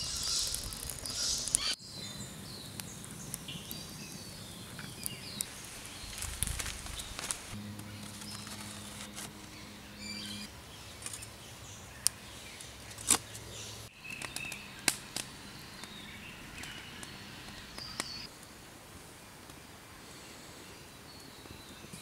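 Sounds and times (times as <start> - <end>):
wood fire crackling: 0.0 - 9.3, 14.1 - 19.8
birds chirping: 0.0 - 18.3
low steady hum: 2.2 - 13.9.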